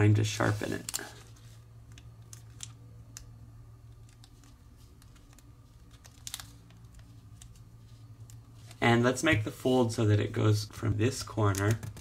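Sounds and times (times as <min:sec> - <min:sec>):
steady low hum: 0:00.0 - 0:12.0
paper crackling and creasing: 0:00.3 - 0:01.6, 0:04.0 - 0:09.8.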